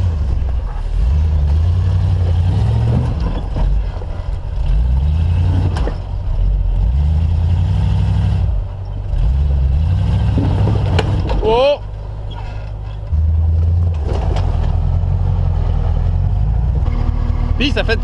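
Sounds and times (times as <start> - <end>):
off-road vehicle engine revving: 0.0 - 18.0.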